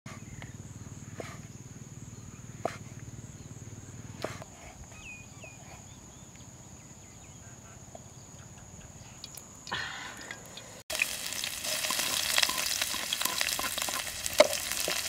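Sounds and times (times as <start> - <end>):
steady low hum: 0.1 - 10.8.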